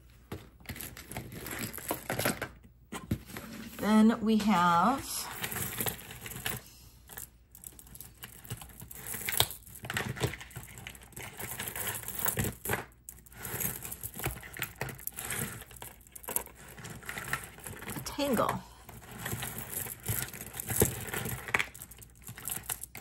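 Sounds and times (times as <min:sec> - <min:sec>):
beads clicking and rattling: 0:05.3 - 0:23.0.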